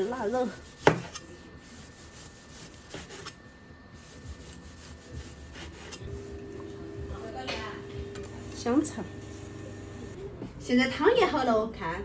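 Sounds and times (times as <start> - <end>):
cleaver sawing through meat: 0.0 - 3.4, 4.0 - 6.3.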